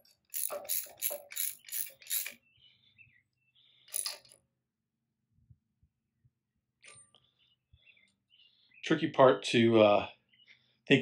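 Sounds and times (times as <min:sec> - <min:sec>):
socket ratchet wrench clicking: 0:00.0 - 0:02.4, 0:03.9 - 0:04.3.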